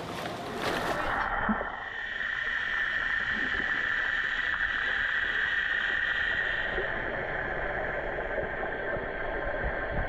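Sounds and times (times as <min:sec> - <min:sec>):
constant hiss: 0:00.0 - 0:10.0
muffled underwater noise: 0:00.0 - 0:10.0.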